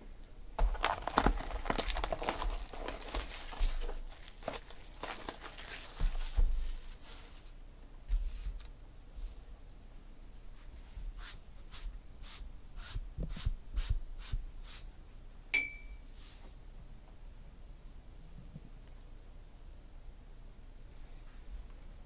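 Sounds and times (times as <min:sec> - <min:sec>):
sharp tap with ringing tone: 0:15.5 - 0:16.0.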